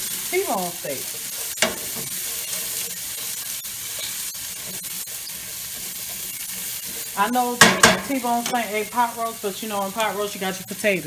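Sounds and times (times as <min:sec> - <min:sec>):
onions sizzling in a pan: 0:00.0 - 0:11.0
utensil scraping pan bottom: 0:01.2 - 0:08.7.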